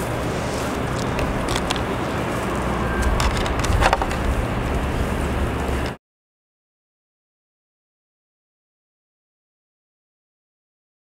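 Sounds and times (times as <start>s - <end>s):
low rumble: 0.0s - 6.0s.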